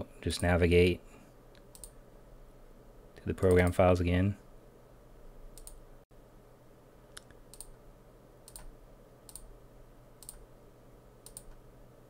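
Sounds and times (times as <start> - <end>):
low steady hum: 0.0 - 12.0
computer mouse clicks: 1.5 - 2.0, 5.6 - 5.8, 7.1 - 7.8, 8.5 - 8.7, 9.3 - 9.5, 10.2 - 10.4, 11.2 - 11.6.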